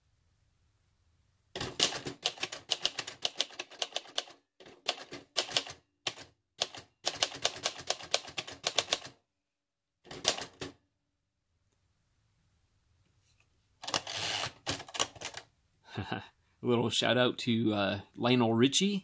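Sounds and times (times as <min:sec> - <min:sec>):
manual typewriter typing: 0:01.6 - 0:09.2, 0:10.1 - 0:10.8, 0:13.8 - 0:15.4.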